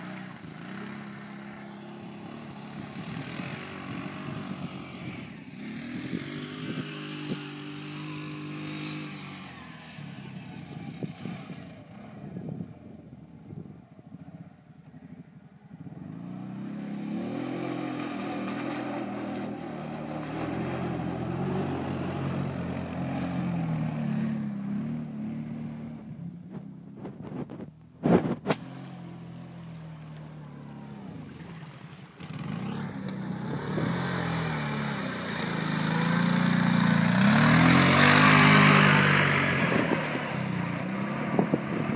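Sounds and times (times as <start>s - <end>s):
quad engine revving: 0.0s - 12.5s, 15.9s - 41.9s
water splashing: 28.6s - 41.9s.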